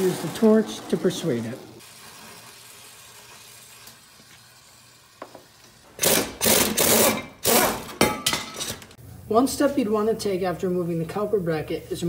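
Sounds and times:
gas torch hissing: 0.0s - 6.7s
air impact wrench hammering: 5.2s - 8.8s.

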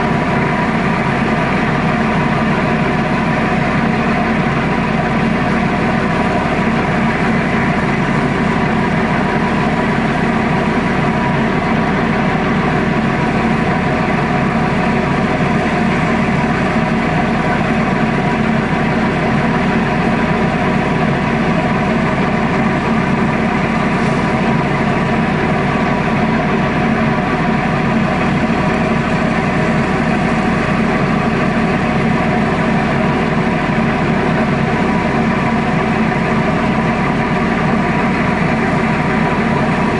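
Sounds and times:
boat diesel engine droning: 0.0s - 39.9s.

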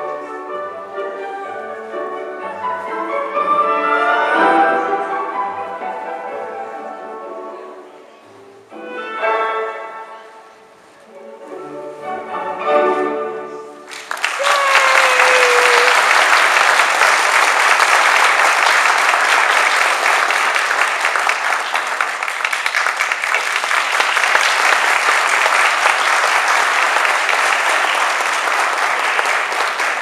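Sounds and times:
audience applause: 13.9s - 30.0s.

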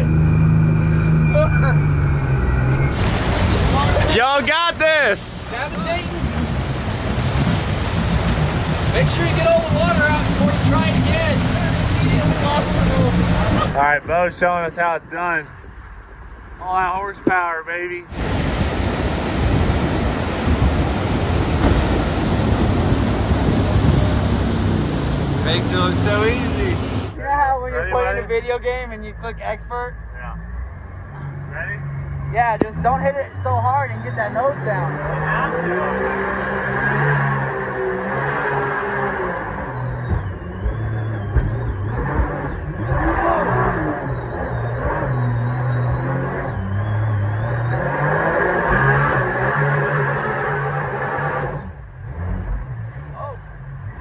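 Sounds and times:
high engine whine: 0.0s - 14.2s, 18.0s - 54.0s
jet boat engine rumble: 0.0s - 29.6s
whitewater rapids rushing: 3.0s - 13.8s, 18.1s - 27.2s.

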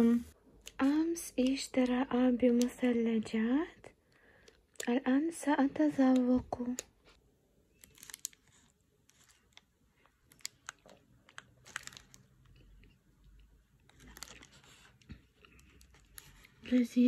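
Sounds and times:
foil wrapper crinkling: 7.7s - 12.7s, 13.8s - 17.0s.

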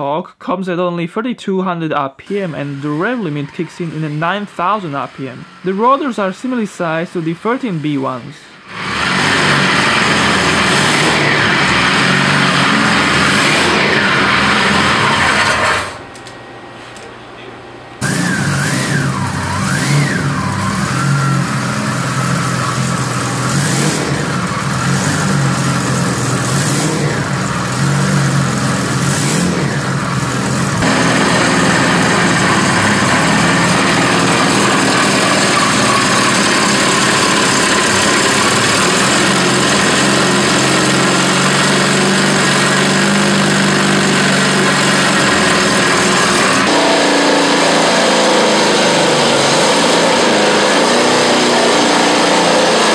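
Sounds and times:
rotary engine running: 18.0s - 52.9s.

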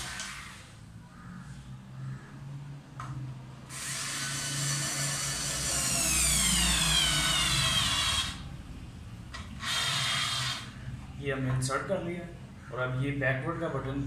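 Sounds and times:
cordless screwdriver motor whining: 3.7s - 8.4s, 9.6s - 10.7s.

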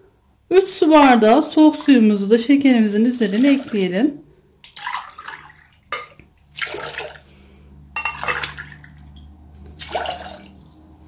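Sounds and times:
water pouring and splashing: 3.0s - 4.0s, 4.6s - 10.9s.

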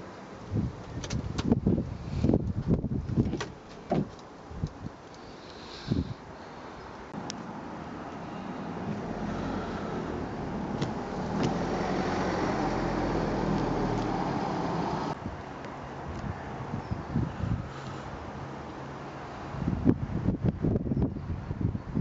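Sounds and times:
vehicle noise with low hum: 0.0s - 22.0s.

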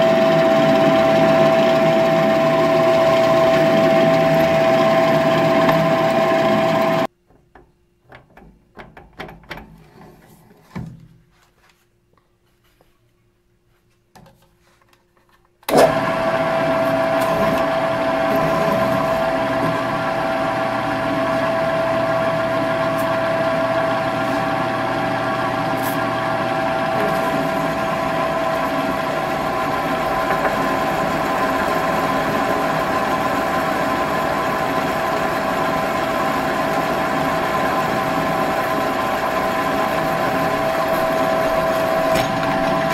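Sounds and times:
drill press motor hum: 0.0s - 7.1s, 15.7s - 42.9s.

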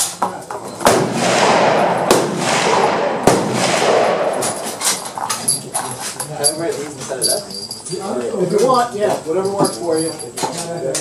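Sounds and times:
rifle shots echoing: 0.8s - 5.4s.

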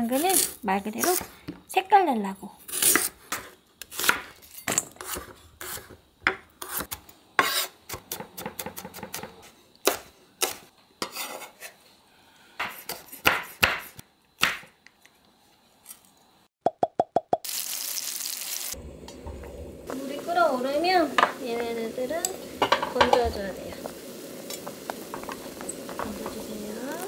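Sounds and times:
knife chopping on wooden board: 12.6s - 14.7s.

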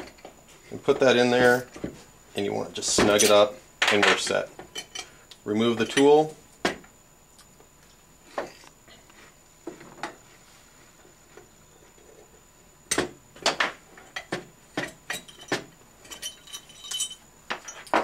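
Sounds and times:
metal clinks of puller plate: 15.1s - 18.0s.

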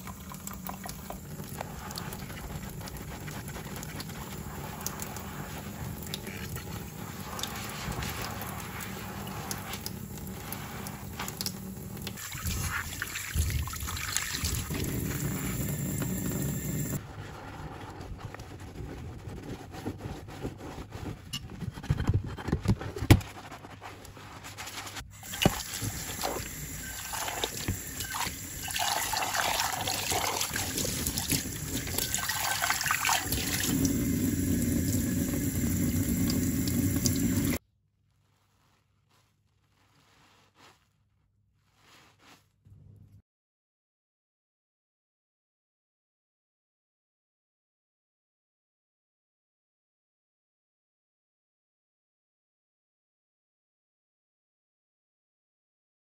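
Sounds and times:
squishing suds and splashing water: 0.0s - 21.2s, 23.2s - 42.6s
sponge scrubbing saucepan: 0.0s - 43.1s
tap running: 25.2s - 37.6s.

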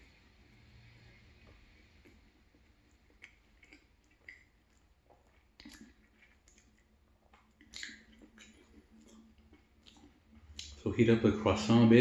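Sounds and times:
chewing croissant: 0.0s - 11.2s
mouth clicks: 7.4s - 9.2s, 9.8s - 10.8s.

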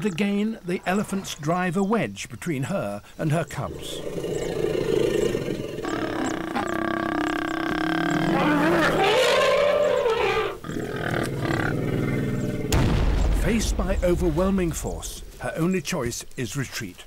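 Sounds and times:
elephants trumpeting: 3.6s - 12.7s.

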